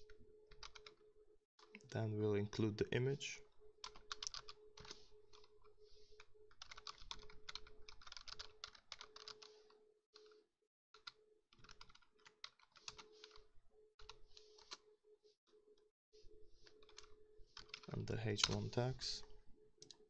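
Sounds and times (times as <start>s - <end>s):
typing on computer keyboard: 0.5s - 1.0s, 3.8s - 10.4s, 11.0s - 13.4s, 16.6s - 18.7s.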